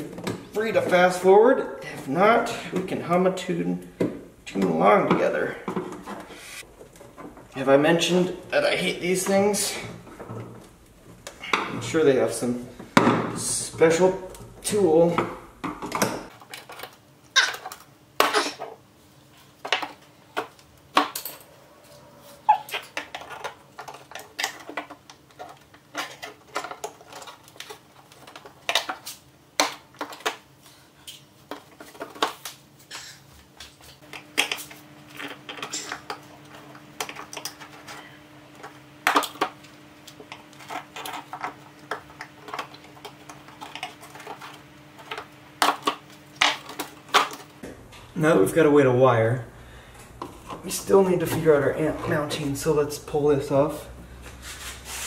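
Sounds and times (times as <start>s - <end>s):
hand tools prying plastic fasteners: 22.5s - 30.4s, 35.2s - 47.5s
plastic and metal clattering: 22.5s - 30.4s, 40.2s - 47.5s.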